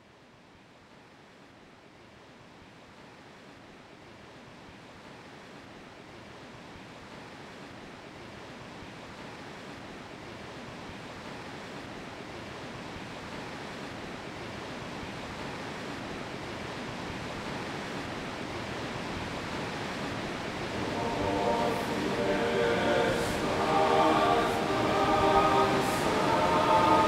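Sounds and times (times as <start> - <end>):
waterfall roaring: 17.4 - 27.0.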